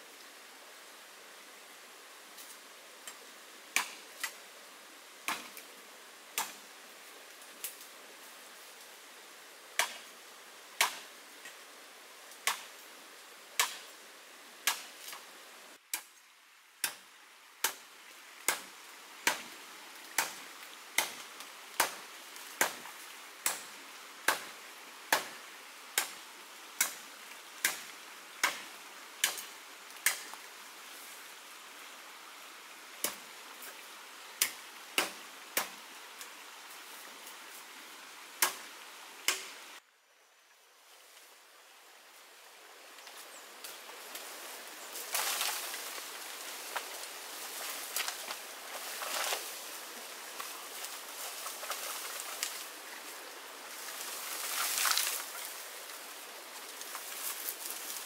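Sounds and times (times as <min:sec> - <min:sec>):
machete chopping bamboo: 0:03.8 - 0:04.0, 0:05.3 - 0:05.6, 0:06.4 - 0:06.6, 0:09.8 - 0:10.0, 0:10.8 - 0:11.0, 0:12.4 - 0:12.7, 0:13.6 - 0:13.9, 0:14.6 - 0:14.9, 0:16.8 - 0:17.0, 0:18.5 - 0:19.5, 0:20.2 - 0:20.4, 0:21.0 - 0:21.2, 0:21.8 - 0:22.0, 0:22.6 - 0:22.8, 0:23.4 - 0:23.7, 0:24.3 - 0:24.5, 0:25.1 - 0:25.4, 0:26.0 - 0:26.2, 0:26.8 - 0:27.0, 0:27.6 - 0:28.6, 0:29.2 - 0:30.2, 0:34.4 - 0:35.8, 0:38.4 - 0:38.6, 0:39.3 - 0:39.5.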